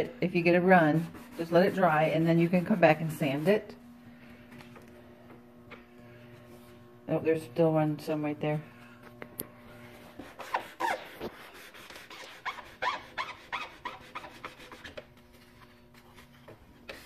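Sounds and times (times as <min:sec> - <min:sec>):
sandpaper rasping on wood: 0:00.5 - 0:03.6, 0:10.1 - 0:15.0.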